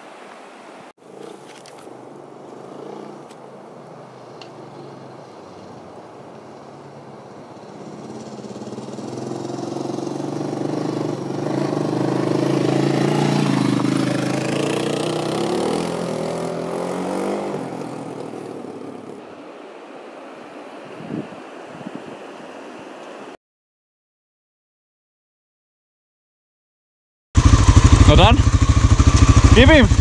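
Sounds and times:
motorcycle engine passing by: 4.0 - 19.2, 27.4 - 30.0.

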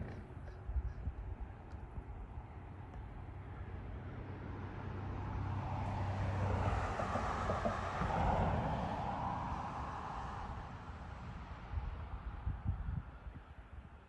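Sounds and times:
passing vehicle engine: 2.5 - 12.8.

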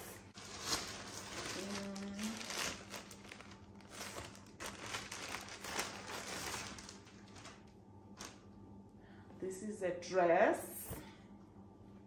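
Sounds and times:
packaging crinkling and rustling: 0.2 - 8.4.

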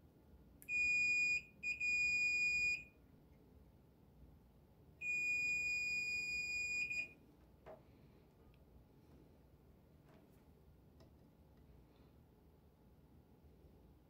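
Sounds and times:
multimeter high beep: 0.7 - 2.9, 5.0 - 7.2.

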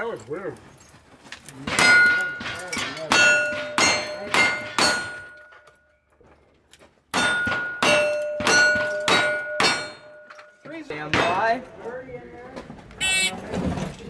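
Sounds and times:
steel plate target ringing: 7.2 - 10.6.

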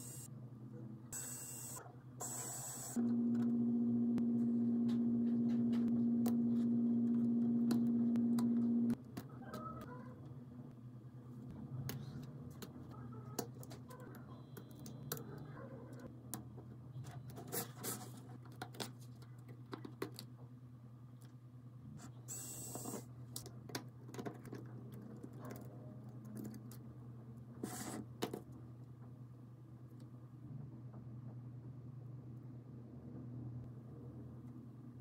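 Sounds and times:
low hum: 3.0 - 9.0.

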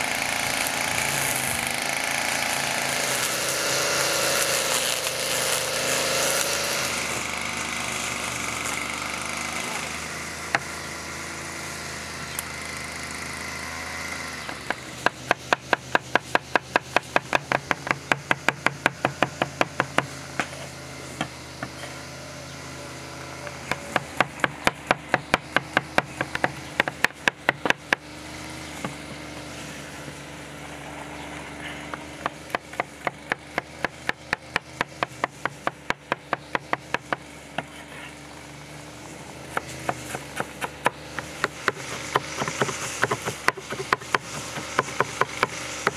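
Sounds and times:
cleaver chopping on wooden board: 14.4 - 20.6, 21.2 - 21.9, 23.6 - 29.4, 31.9 - 37.8, 39.5 - 45.9.

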